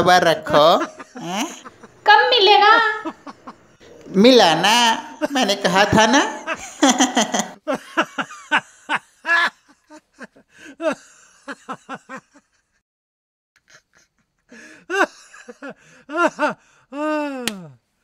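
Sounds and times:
person making wordless sounds: 3.8 - 6.5, 17.0 - 17.8.

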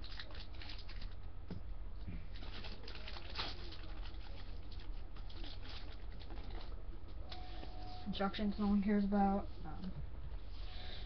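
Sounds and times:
packaging rustling and crinkling: 0.0 - 1.3, 2.2 - 6.8.

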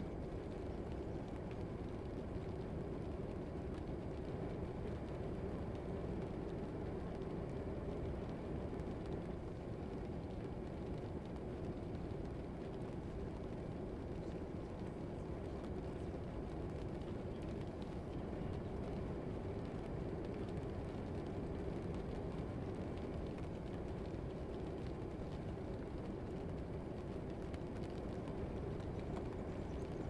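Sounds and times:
low background rumble: 0.0 - 30.0.

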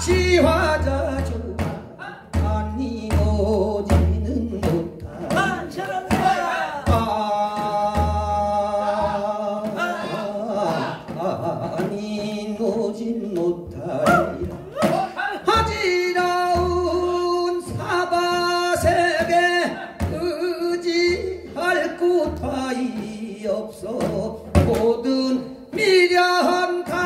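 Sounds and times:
man singing into a microphone: 0.0 - 27.0.

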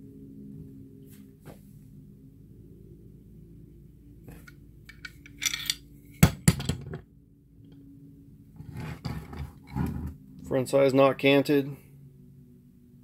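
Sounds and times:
faint low hum: 0.0 - 13.0
metal clinks and knocks: 4.4 - 7.0.

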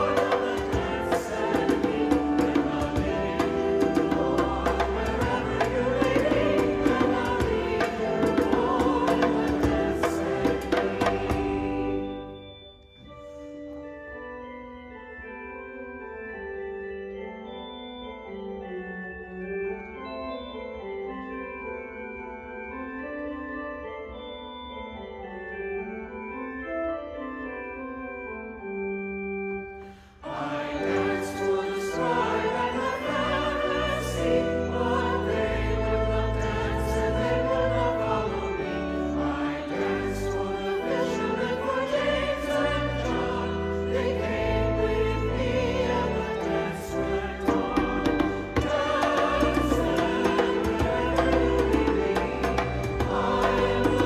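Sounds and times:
percussion hits: 0.0 - 11.9, 47.4 - 54.0
choir singing a hymn: 0.0 - 12.4, 30.2 - 54.0
church organ playing: 0.0 - 54.0.

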